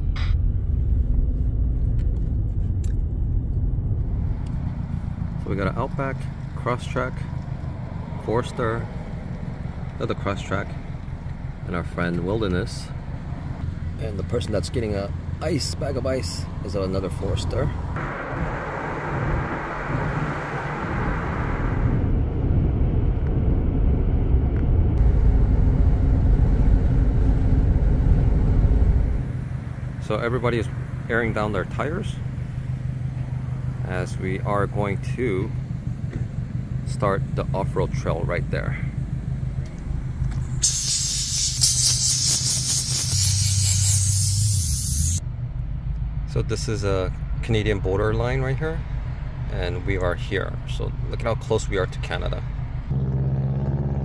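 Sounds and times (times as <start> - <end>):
deep steady road rumble: 0.0 - 54.0
hissing rush: 40.4 - 45.2.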